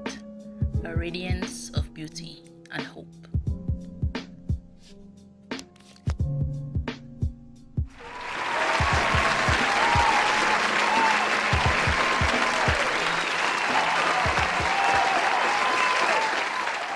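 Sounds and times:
audience applause: 0:08.0 - 0:16.9
audience cheering: 0:08.0 - 0:16.9.

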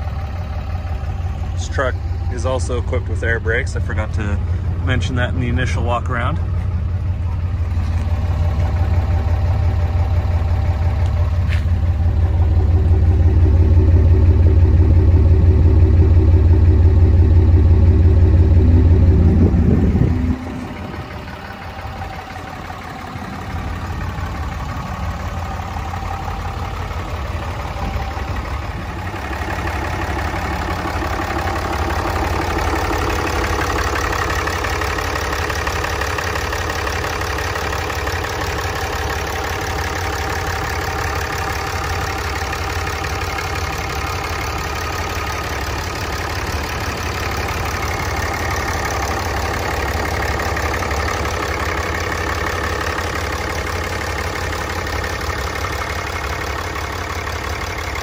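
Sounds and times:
diesel truck engine idling: 0:00.0 - 0:58.0
engine clatter and whine: 0:00.0 - 0:58.0.

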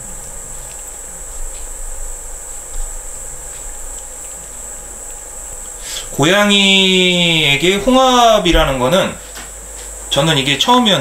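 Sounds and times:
high-pitched chirring drone: 0:00.0 - 0:11.0.

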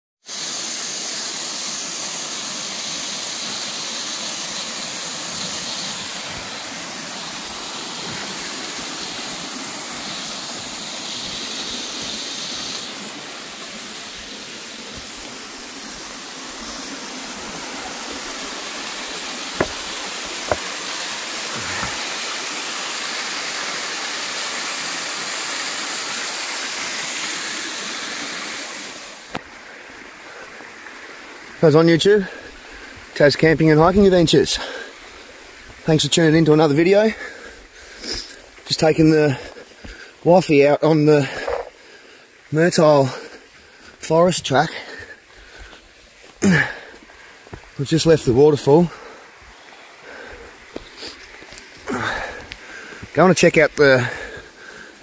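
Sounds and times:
waterfall splashing over rocks: 0:00.2 - 0:55.0.

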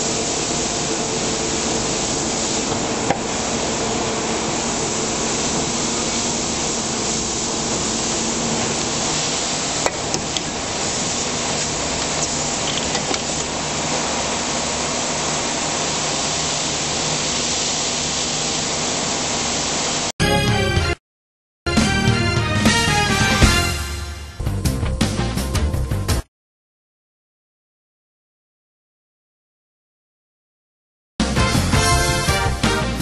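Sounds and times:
machine hissing with low hum: 0:00.0 - 0:20.1
music: 0:20.2 - 0:21.0, 0:21.7 - 0:26.3, 0:31.2 - 0:33.0.

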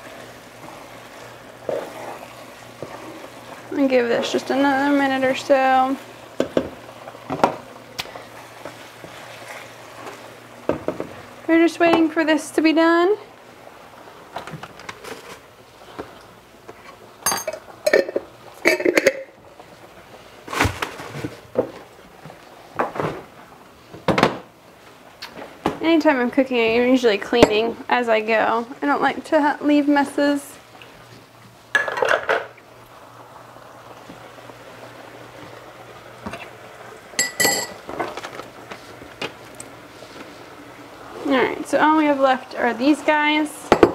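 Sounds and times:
kitchenware clinking on a counter: 0:17.2 - 0:19.3, 0:27.4 - 0:27.7, 0:31.7 - 0:32.5, 0:37.2 - 0:37.8
dishes and utensils clattering: 0:17.2 - 0:19.4, 0:31.7 - 0:32.6, 0:37.2 - 0:38.3.

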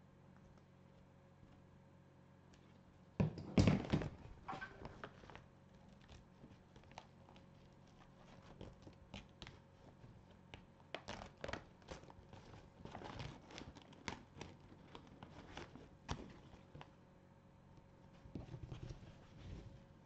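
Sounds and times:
papery tearing and rustling: 0:11.0 - 0:16.9.

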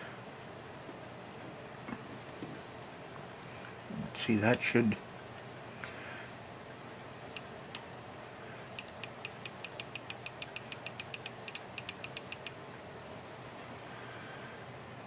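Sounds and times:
turntable switch clicking: 0:08.8 - 0:12.5.

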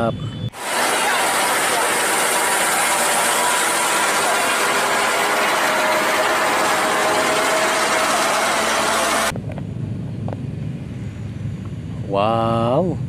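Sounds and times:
truck crane engine rattling: 0:00.6 - 0:09.3.

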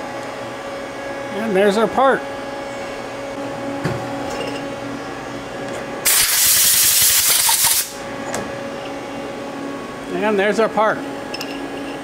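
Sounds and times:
machine hum: 0:00.0 - 0:12.0
air blow gun hissing: 0:06.0 - 0:08.0.

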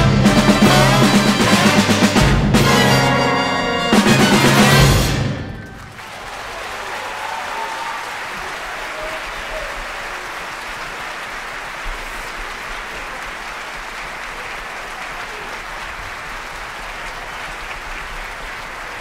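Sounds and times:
audience applauding: 0:04.0 - 0:19.0.

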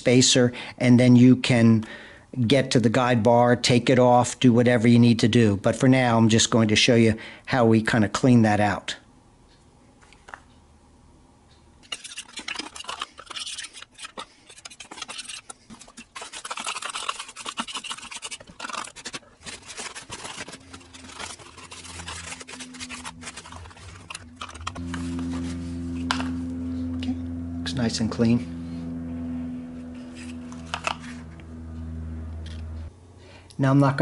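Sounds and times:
steady low hum: 0:10.6 - 0:33.6
stiff brush scrubbing plastic: 0:11.8 - 0:26.4, 0:29.7 - 0:31.5.

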